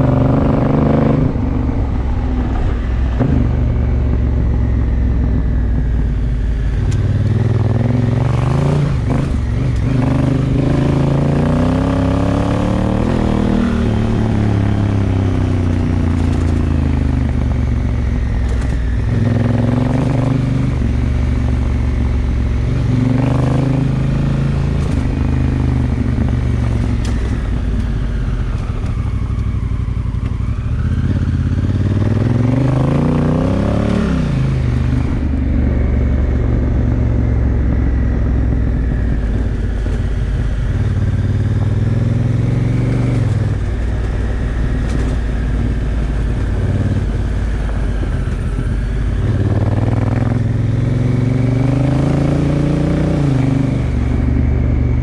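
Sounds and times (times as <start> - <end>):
motorcycle engine revving: 0.0 - 55.0
gravel crackling under tyres: 13.8 - 22.5, 42.8 - 50.2.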